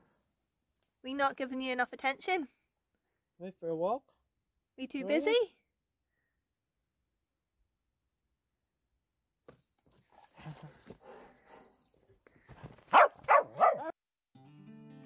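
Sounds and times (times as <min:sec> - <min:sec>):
dog barking: 0:12.9 - 0:13.9.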